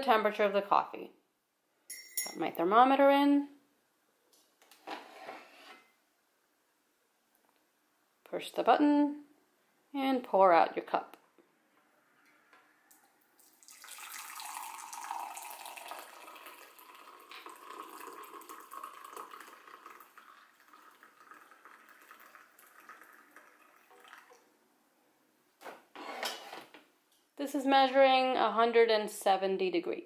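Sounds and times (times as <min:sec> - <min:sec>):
coffee pouring into a mug: 0:13.4 - 0:24.5.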